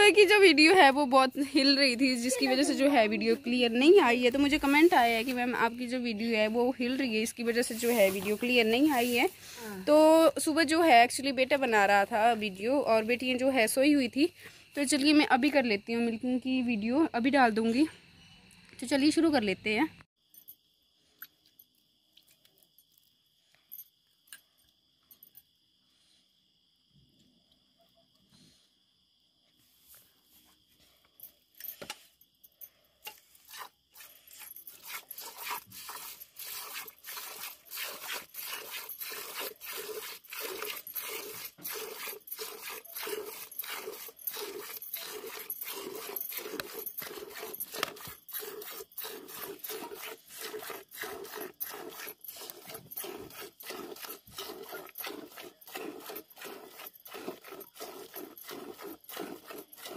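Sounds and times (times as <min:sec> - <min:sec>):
milk squirting into steel pail: 0:33.5 - 0:59.9.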